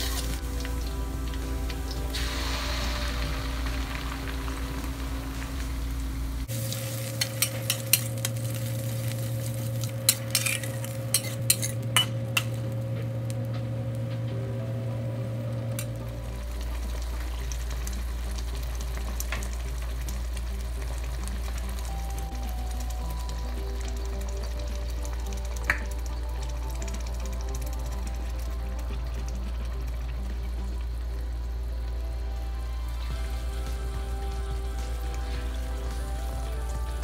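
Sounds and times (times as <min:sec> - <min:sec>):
chilli paste sizzling in oil: 0:00.0 - 0:12.8, 0:15.8 - 0:37.0
spatula scraping a wok: 0:06.5 - 0:12.6.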